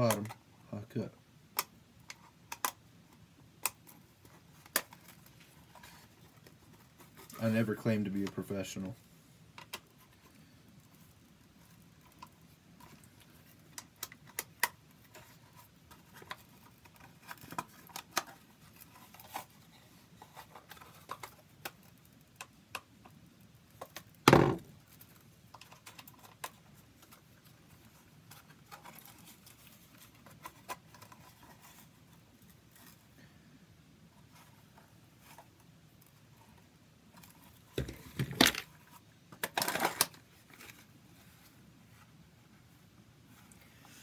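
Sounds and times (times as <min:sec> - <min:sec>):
small clicks and taps of handling: 0:01.5 - 0:02.8.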